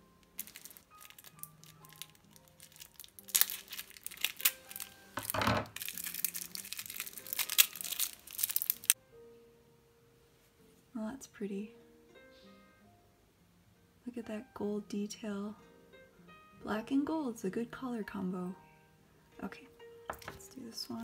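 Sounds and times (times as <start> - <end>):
quiet background music: 0.0 - 21.0
plastic wrapper crinkling: 0.2 - 9.0
scissors cutting plastic: 0.4 - 9.0.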